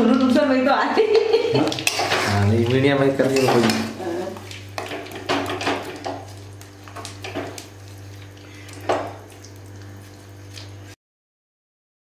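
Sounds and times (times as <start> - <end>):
metal spatula scraping a pan: 1.7 - 4.0.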